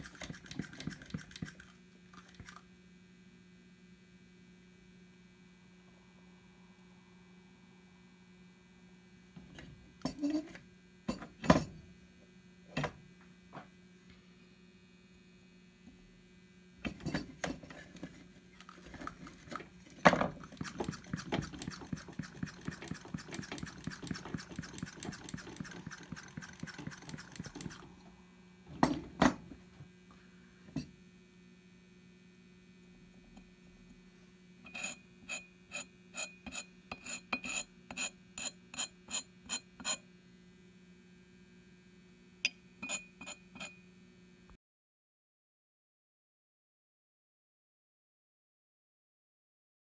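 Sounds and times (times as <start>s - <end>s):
fast scraping or stirring: 0.0s - 2.6s, 20.4s - 27.9s, 34.7s - 40.0s
electrical hum: 0.0s - 44.6s.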